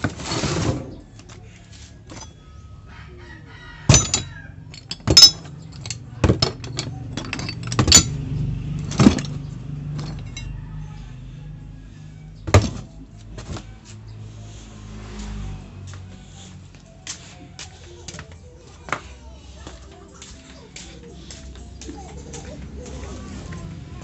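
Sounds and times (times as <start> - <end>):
metal parts clanking in a box: 2.1 - 2.5, 3.9 - 10.6.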